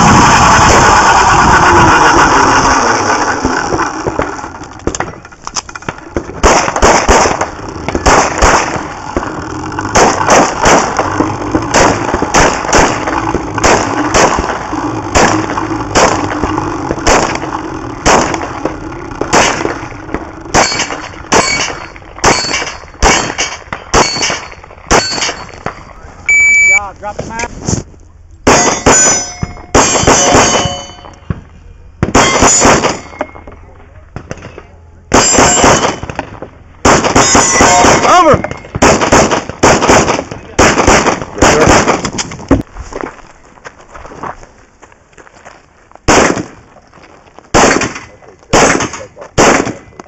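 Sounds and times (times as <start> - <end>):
loud rushing noise: 0.0 - 4.6
pistol shots: 6.4 - 19.8, 20.5 - 25.8, 28.4 - 31.0, 32.0 - 33.3, 34.2 - 42.3, 46.1 - 46.6, 47.5 - 50.0
steel plates ringing: 20.5 - 26.8, 28.4 - 31.3, 32.2 - 33.6, 35.1 - 36.0, 37.2 - 38.8.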